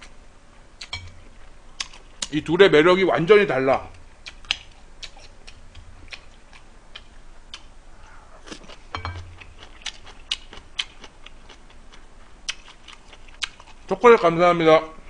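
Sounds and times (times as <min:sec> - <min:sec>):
cutlery clicking on plate: 0:00.8 - 0:01.2, 0:08.9 - 0:09.4
person chewing: 0:00.8 - 0:02.3, 0:04.2 - 0:14.0.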